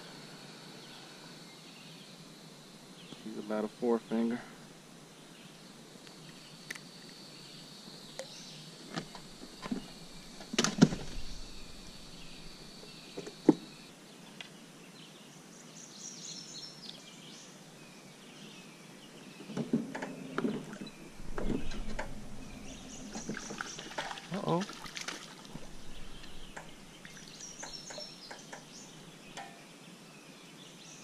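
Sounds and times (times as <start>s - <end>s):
high insect drone: 0.0s - 13.9s, 20.0s - 29.6s.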